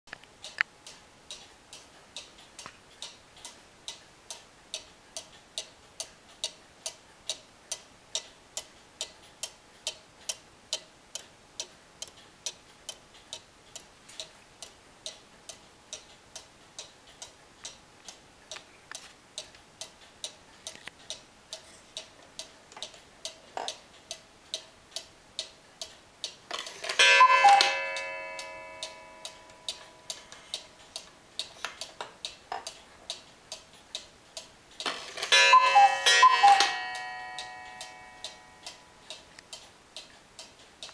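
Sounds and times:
clock ticking: 0.1 - 40.9
ringing tone: 27.0 - 29.7, 35.3 - 38.6
cuckoo call: 27.1 - 28.1, 35.5 - 38.3.

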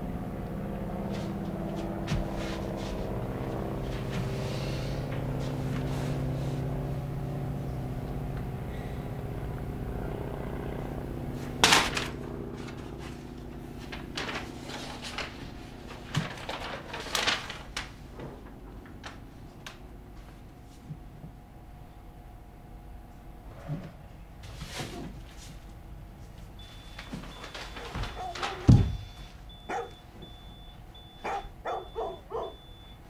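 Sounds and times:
low hum of pitched tones: 0.0 - 14.4.

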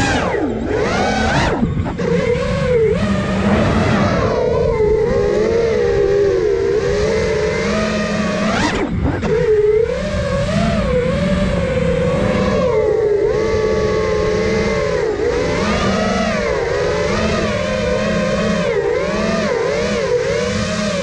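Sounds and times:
low rushing noise: 0.0 - 9.3
drone propellers whining: 0.0 - 21.0.

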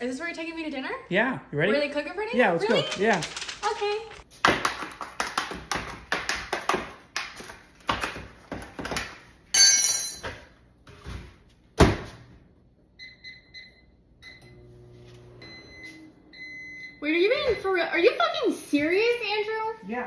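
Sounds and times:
microwave humming: 11.7 - 17.5.

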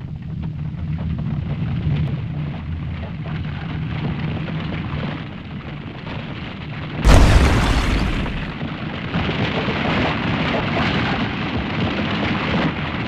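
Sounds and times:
deep crackling rumble: 2.1 - 9.9
sudden loud blast: 7.0 - 8.7.

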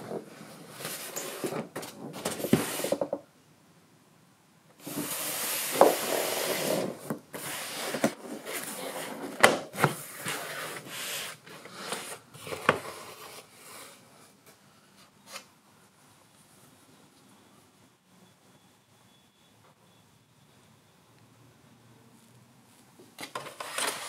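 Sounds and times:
foam lid rubbing and scraping: 4.8 - 14.0.

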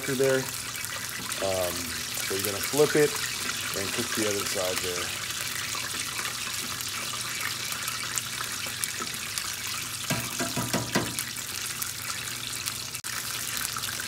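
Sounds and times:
crackling sizzle of deep-frying: 0.0 - 14.0
tongs knocking against pan: 10.1 - 11.2.

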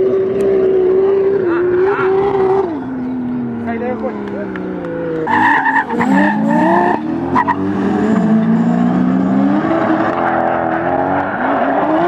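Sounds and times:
car engines revving: 0.0 - 12.0
tyres squealing: 5.2 - 7.6.

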